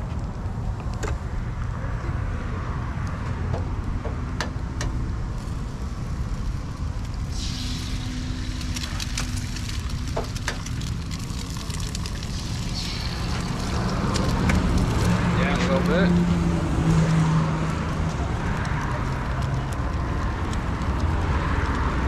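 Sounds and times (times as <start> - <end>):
eggs sizzling on griddle: 5.4 - 22.0.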